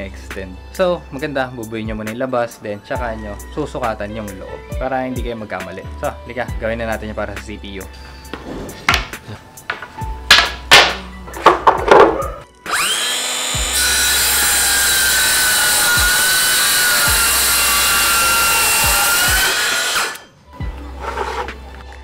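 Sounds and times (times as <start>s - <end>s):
boards knocking: 8.4s - 12.4s
circular saw cutting plywood: 12.7s - 20.3s, 20.9s - 21.6s.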